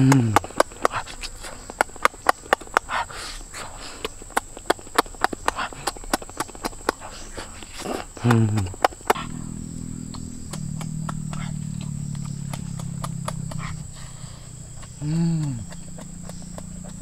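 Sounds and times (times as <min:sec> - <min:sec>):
man humming: 0:00.0 - 0:00.6, 0:08.2 - 0:17.0
wet chewing and lip-smacking: 0:00.0 - 0:17.0.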